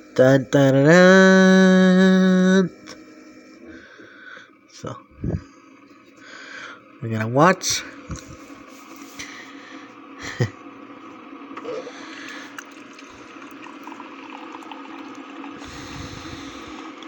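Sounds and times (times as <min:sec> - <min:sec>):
coffee machine hum: 0:00.0 - 0:17.0
hot water pouring into mug: 0:12.0 - 0:17.0.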